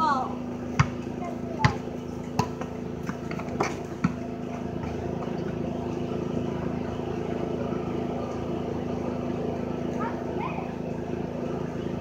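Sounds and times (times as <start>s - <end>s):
steady low hum: 0.0s - 12.0s
basketball bouncing on pavement: 0.6s - 5.9s.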